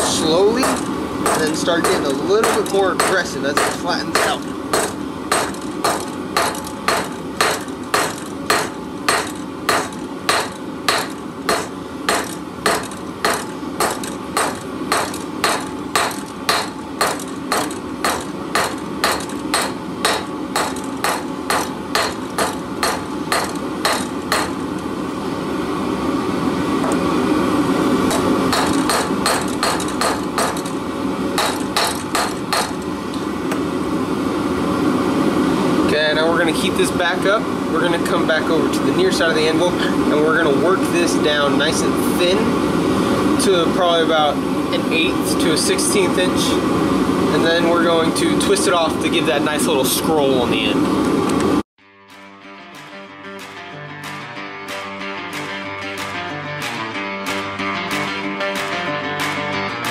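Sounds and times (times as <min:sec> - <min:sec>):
hammer striking steel on anvil: 0:00.0 - 0:24.6, 0:28.1 - 0:30.8, 0:31.4 - 0:32.8
steady hum: 0:00.0 - 0:51.6.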